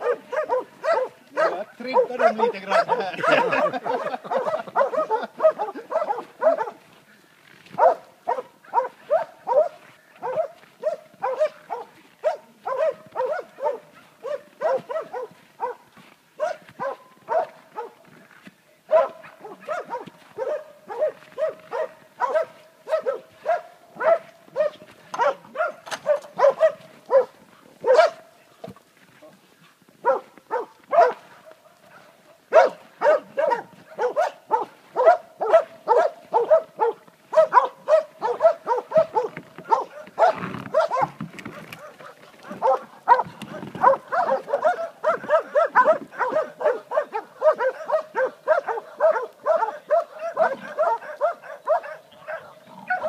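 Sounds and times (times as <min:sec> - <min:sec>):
dogs barking: 0:00.0 - 0:06.9, 0:07.7 - 0:18.2, 0:18.9 - 0:28.8, 0:30.0 - 0:53.0.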